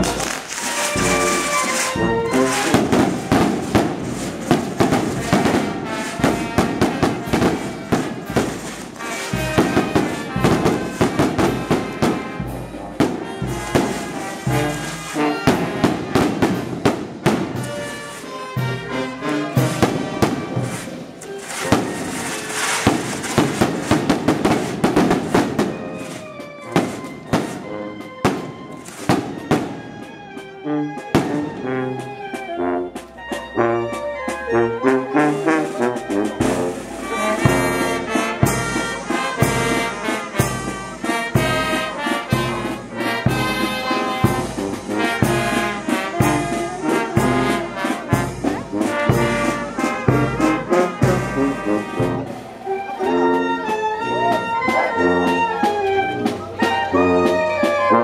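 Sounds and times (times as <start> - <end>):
sharp cracks: 0.0 - 6.4, 19.8 - 26.2
brass band playing: 0.0 - 58.0.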